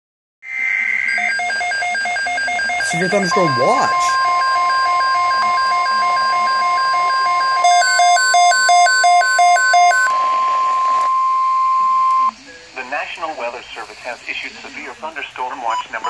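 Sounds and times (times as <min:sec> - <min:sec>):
steady warning alarm tone: 0:00.8 - 0:12.4
weather radio alert beeping: 0:01.1 - 0:12.4.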